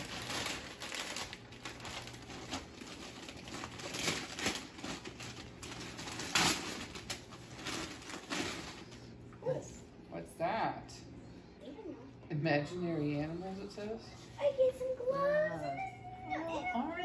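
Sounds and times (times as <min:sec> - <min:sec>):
wrapping paper rustling: 0:00.0 - 0:09.2.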